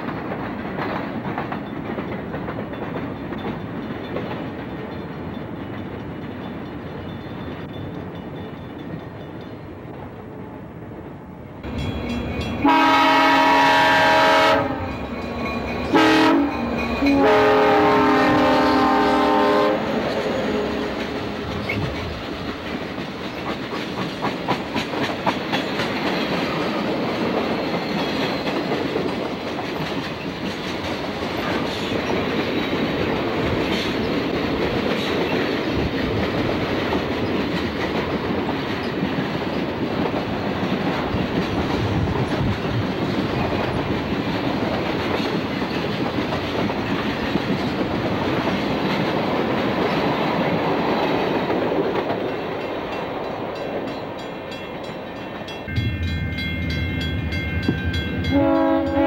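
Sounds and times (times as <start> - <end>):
wheels clacking over rail joints: 0.0 - 10.4, 19.9 - 55.8
freight train cars rolling past: 0.0 - 59.0.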